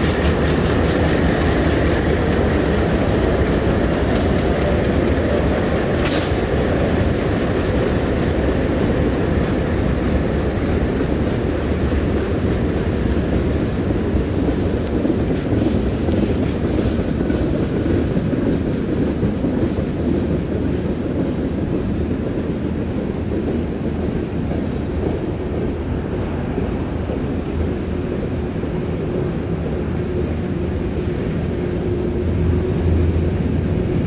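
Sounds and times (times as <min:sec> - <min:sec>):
freight train wheels rumbling: 0:00.0 - 0:34.0
wheels clickety-clack: 0:00.0 - 0:34.0.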